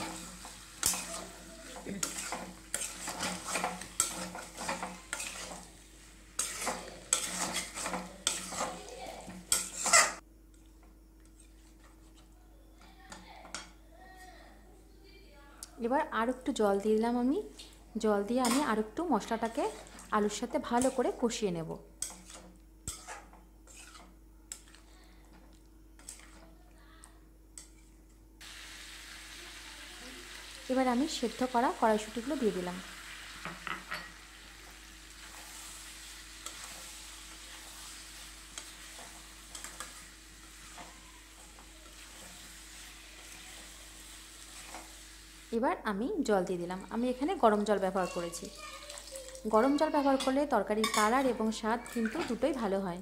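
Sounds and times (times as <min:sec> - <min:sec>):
metal spatula scraping a pan: 0:00.0 - 0:10.2, 0:18.4 - 0:21.2, 0:22.0 - 0:24.9, 0:26.0 - 0:26.6, 0:27.6 - 0:28.0, 0:33.9 - 0:45.1
spatula scraping metal pan: 0:00.0 - 0:10.2, 0:18.4 - 0:18.8, 0:22.0 - 0:24.7, 0:26.0 - 0:26.5
light sizzle: 0:00.0 - 0:14.4, 0:15.6 - 0:53.0.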